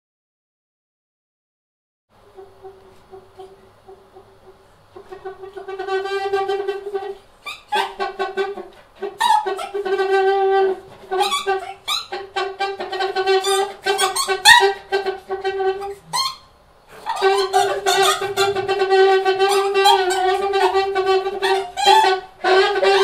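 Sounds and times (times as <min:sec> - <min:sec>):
saxophone squeaks and squeals: 0:05.0 - 0:23.0.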